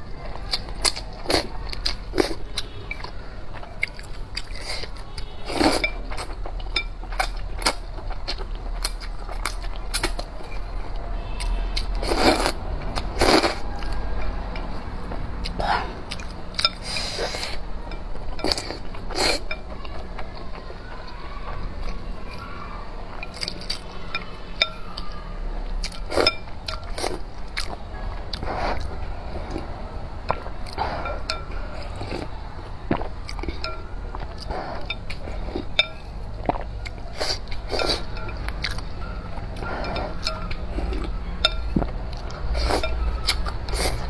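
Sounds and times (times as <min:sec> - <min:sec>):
chewing: 0:00.0 - 0:44.0
chopsticks clinking on a bowl: 0:00.5 - 0:14.8, 0:16.1 - 0:20.6, 0:23.1 - 0:25.1, 0:25.8 - 0:27.8, 0:30.6 - 0:32.3, 0:33.3 - 0:44.0
slurping noodles: 0:12.0 - 0:12.6.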